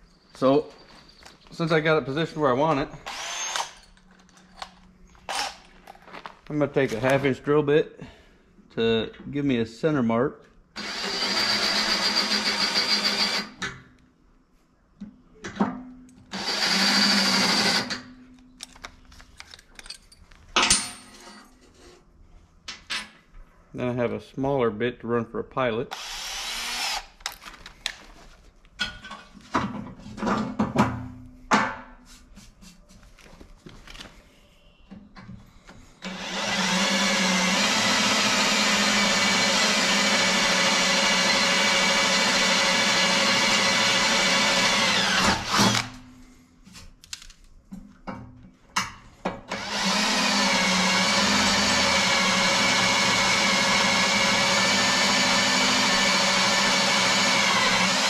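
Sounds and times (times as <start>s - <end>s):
cordless drill boring into metal: 3.0s - 3.9s, 5.3s - 5.6s, 10.8s - 13.6s, 16.3s - 18.0s, 25.9s - 27.2s, 36.0s - 46.0s, 49.5s - 58.0s.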